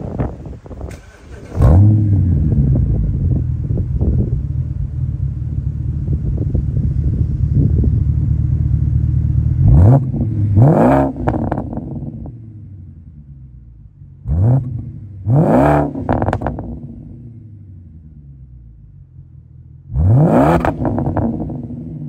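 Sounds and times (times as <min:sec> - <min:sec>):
car engine starting and idling: 0:00.0 - 0:22.0
engine revving: 0:00.9 - 0:03.4, 0:06.2 - 0:12.9, 0:14.2 - 0:18.3, 0:19.9 - 0:22.0.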